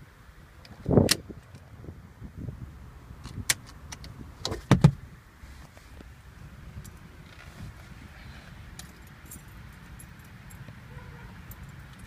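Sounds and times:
thump: 4.7s - 5.0s.

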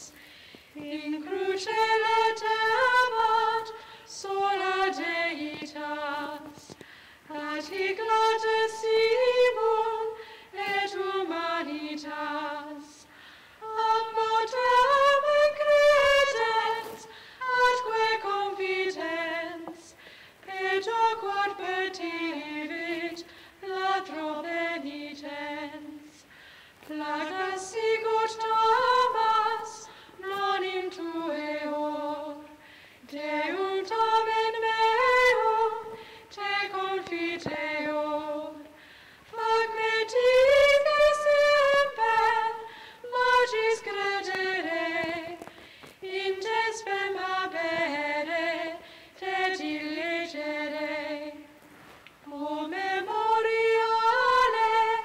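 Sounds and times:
person singing a hymn: 0.0s - 55.0s
singer breathing: 0.1s - 0.8s, 3.8s - 4.1s, 6.7s - 7.3s, 10.2s - 10.6s, 13.0s - 13.6s, 17.0s - 17.4s, 19.8s - 20.4s, 23.3s - 23.6s, 26.2s - 26.9s, 29.8s - 30.2s, 32.5s - 33.0s, 35.9s - 36.3s, 38.6s - 39.3s, 42.6s - 43.1s, 45.4s - 46.0s, 48.8s - 49.2s.

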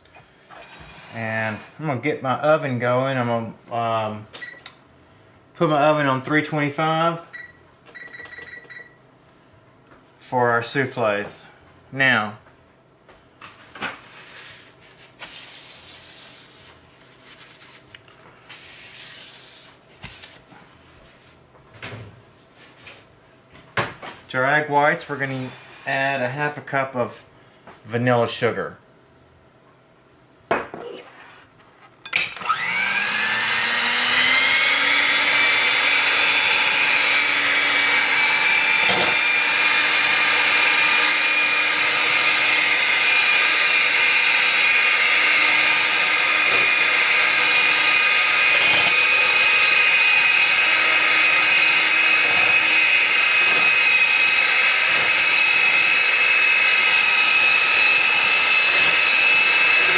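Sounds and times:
electric hand mixer whining: 25.2s - 26.2s, 32.4s - 59.9s.

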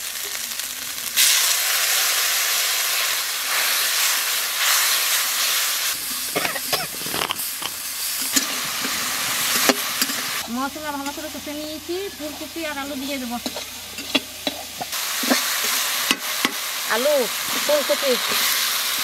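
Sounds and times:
spices sizzling in hot oil: 0.0s - 19.0s
steam hissing: 1.2s - 10.4s, 14.1s - 19.0s.

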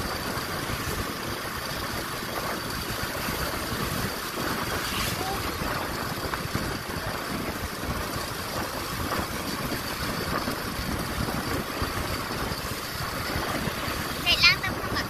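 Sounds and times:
vehicle engine and road rumble: 0.0s - 15.0s.

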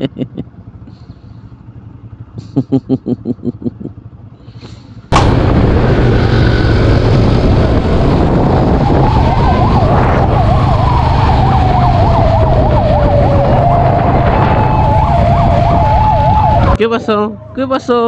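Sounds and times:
motorcycle engine drone: 0.0s - 18.0s
wind rush: 5.1s - 16.8s
police siren wailing and yelping: 8.6s - 18.0s.

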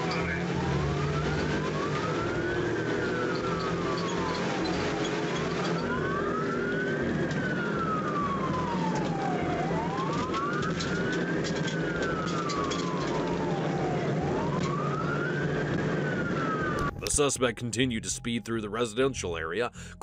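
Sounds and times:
engine and road noise: 0.0s - 20.0s
police siren wailing: 0.0s - 20.0s.

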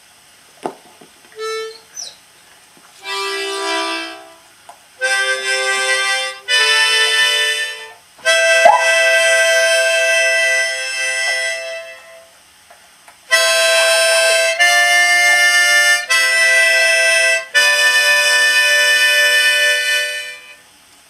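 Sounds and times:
harmonica chords: 3.0s - 4.4s, 5.0s - 11.1s, 13.3s - 20.5s
sharp knock: 8.7s - 9.0s.

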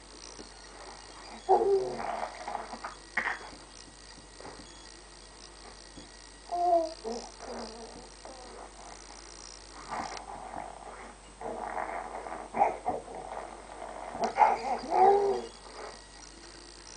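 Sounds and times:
baby babbling: 6.5s - 8.6s, 14.4s - 15.5s.

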